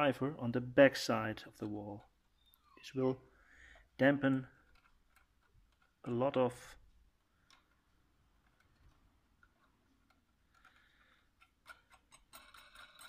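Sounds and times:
small metallic clicks: 3.6 - 6.5, 7.3 - 13.0.

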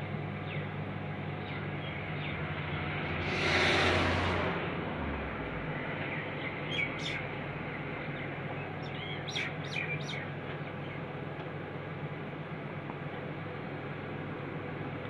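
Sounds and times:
bird chirps: 8.8 - 10.3.

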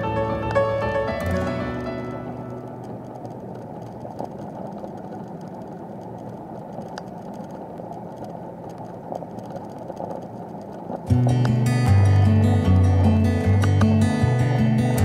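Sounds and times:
bicycle rolling rumble: 0.0 - 15.0
faint click: 1.8 - 11.6.

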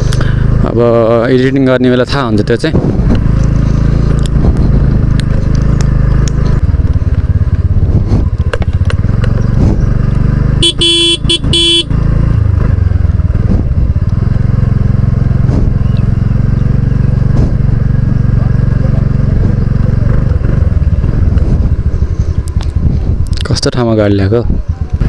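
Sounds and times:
motorcycle engine running: 0.0 - 25.0
vehicle horn short blasts: 10.6 - 12.0.

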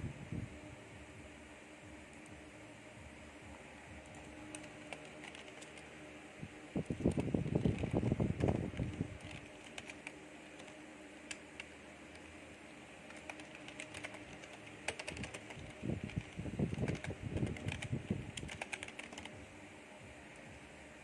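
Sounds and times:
keyboard keys clicking: 4.0 - 5.9, 6.9 - 12.3, 13.1 - 19.4.

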